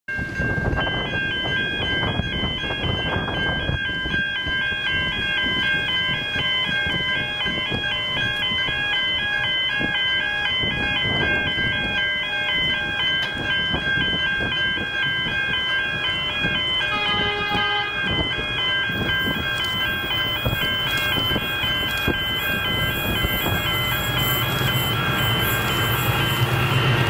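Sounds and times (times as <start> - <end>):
wind noise: 0.1 - 27.0
two-tone electronic alarm warbling: 0.5 - 27.0.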